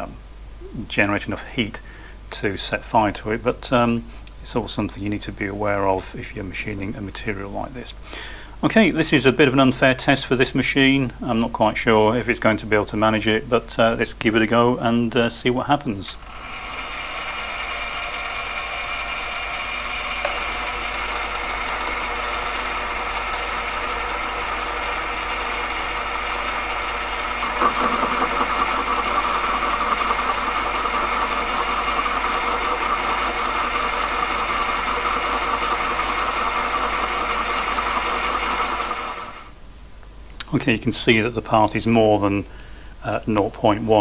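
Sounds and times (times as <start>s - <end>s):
lathe motor whining: 16.2s - 39.5s
lathe tool cutting metal: 16.2s - 39.5s.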